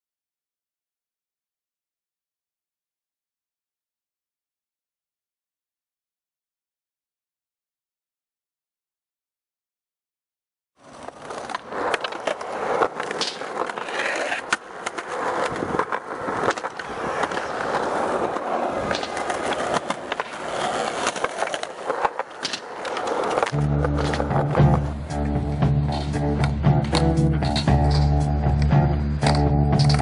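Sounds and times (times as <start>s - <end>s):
skateboard clacks: 10.8s - 30.0s
skateboard wheels rolling on concrete: 10.8s - 30.0s
music: 23.6s - 30.0s.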